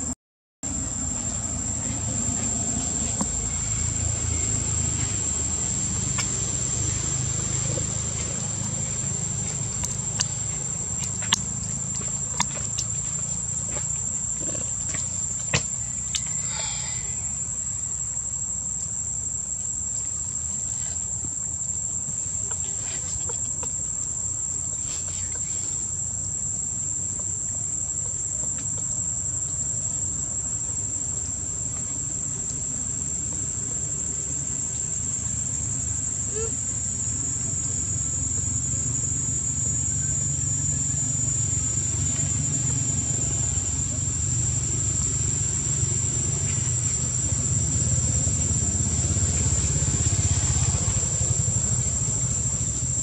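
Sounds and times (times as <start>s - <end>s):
low continuous rumble: 0.7s - 53.0s
high-pitched insect drone: 0.8s - 24.2s, 29.1s - 53.0s.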